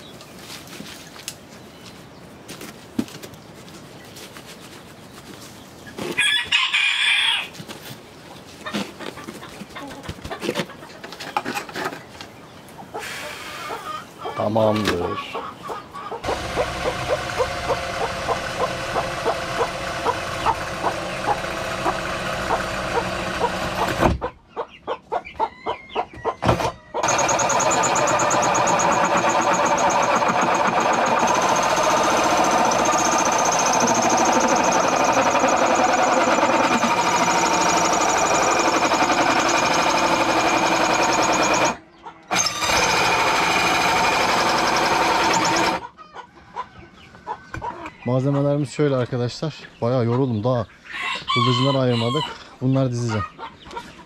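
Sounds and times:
power drill whining: 16.2 - 24.0, 27.0 - 45.8.

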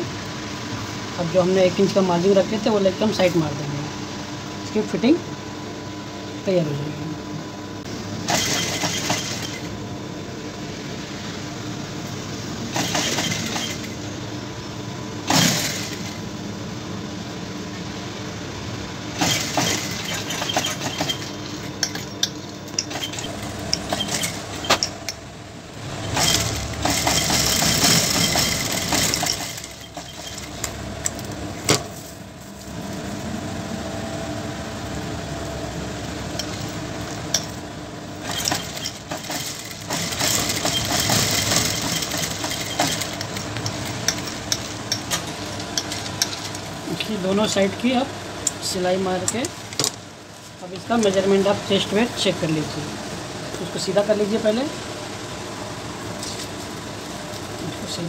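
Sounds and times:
sewing machine stitching: 8.3 - 9.7, 12.7 - 14.0, 19.2 - 21.6, 22.9 - 24.8, 25.9 - 30.6, 38.2 - 43.9
motor humming: 19.0 - 31.7.

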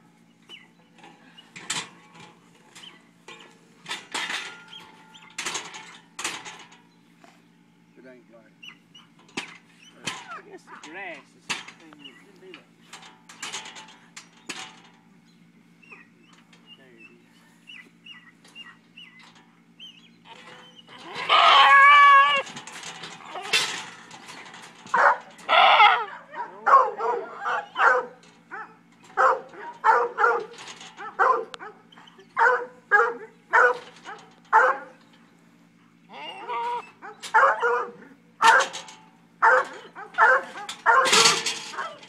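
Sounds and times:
steady low hum: 0.0 - 42.0
goat bleating: 20.3 - 22.5, 25.4 - 26.2, 36.1 - 37.0.

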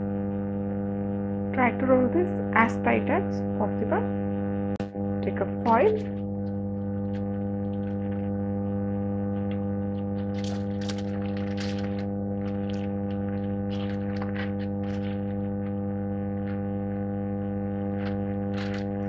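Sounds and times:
steady electrical hum: 0.0 - 19.0
foil crinkling: 7.1 - 8.3, 9.9 - 15.8, 18.0 - 19.0.

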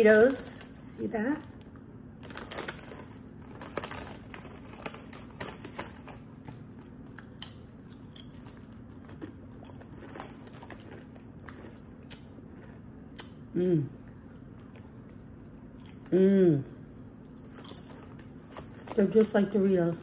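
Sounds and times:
chip bag crinkling: 0.0 - 12.8, 17.2 - 20.0
crunching chip being chewed: 2.2 - 13.4, 14.3 - 16.1, 17.2 - 19.0.

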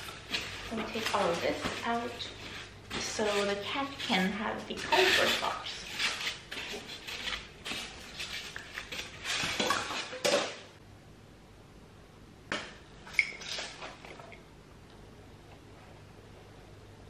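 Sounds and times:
plastic wrapping rustling: 0.0 - 10.5.

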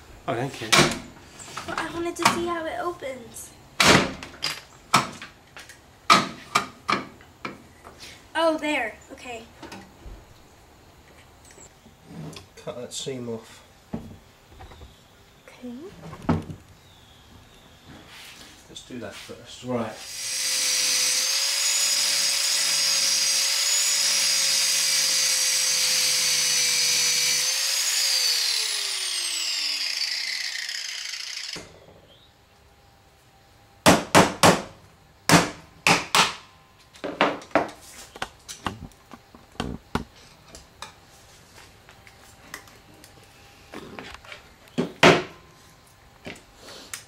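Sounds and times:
angle grinder whining: 20.0 - 31.9.

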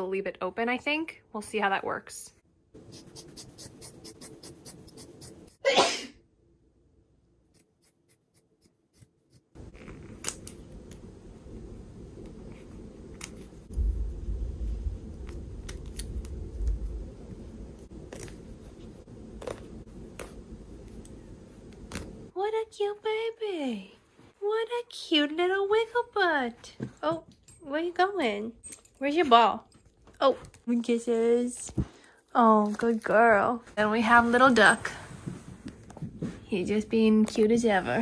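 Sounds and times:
person sneezing: 5.6 - 6.2
low steady hum: 9.6 - 38.0.

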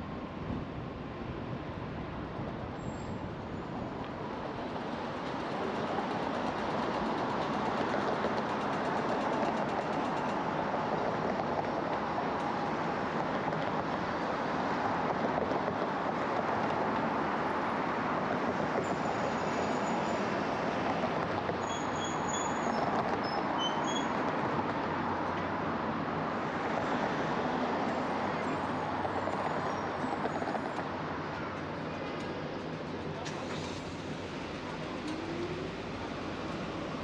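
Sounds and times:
road and traffic noise: 0.0 - 37.0
faint high squeaks: 21.6 - 24.2.

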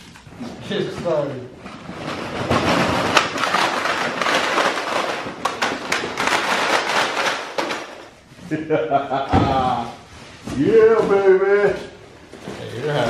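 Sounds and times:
plastic packets clattering on concrete: 0.0 - 8.2.

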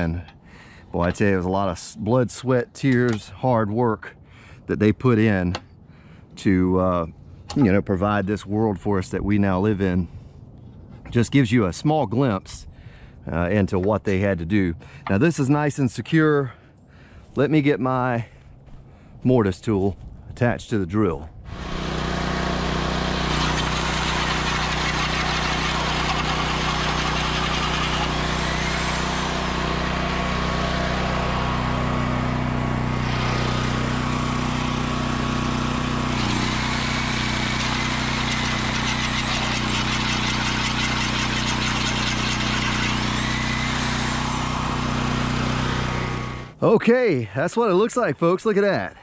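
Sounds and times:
drill cutting wood under load: 21.5 - 46.6.

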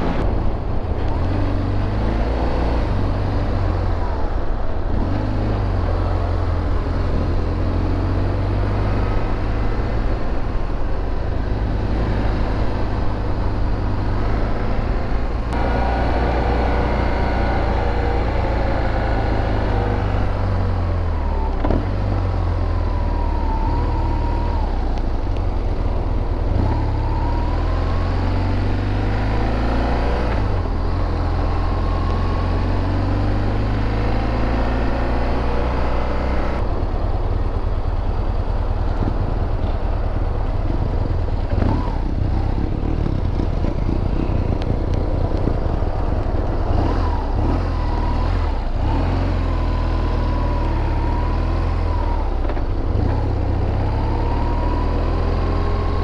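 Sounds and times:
motorcycle engine running: 36.6 - 56.0.

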